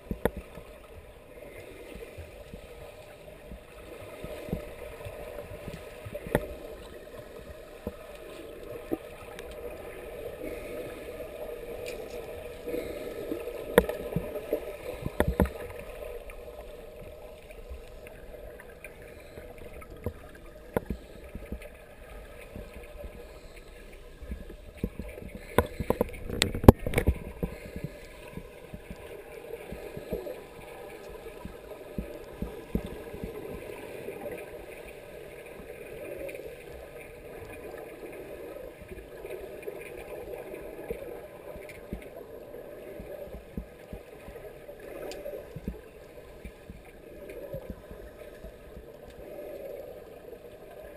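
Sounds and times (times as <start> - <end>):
underwater clicks and knocks: 0.0 - 0.7, 4.3 - 6.6, 13.6 - 16.4, 18.8 - 21.8, 24.2 - 30.3, 31.0 - 33.7
muffled underwater noise: 0.0 - 50.9.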